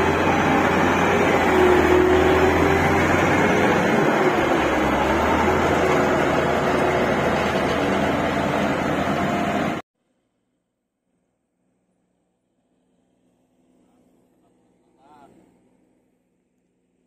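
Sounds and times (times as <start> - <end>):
diesel engine of passing grader: 0.0 - 9.8.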